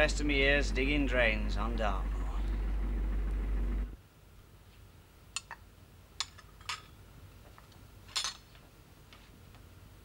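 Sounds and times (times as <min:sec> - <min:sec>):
faint low hum: 0:00.0 - 0:08.0.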